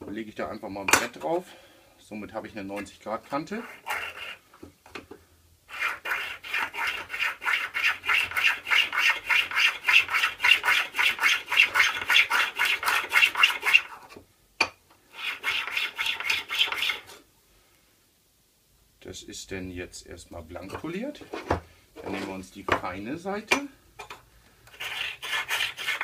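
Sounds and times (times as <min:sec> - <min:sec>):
steel scraper scraping on stone: 0:02.8 - 0:04.4, 0:05.7 - 0:14.1, 0:15.1 - 0:17.2, 0:24.7 - 0:26.0.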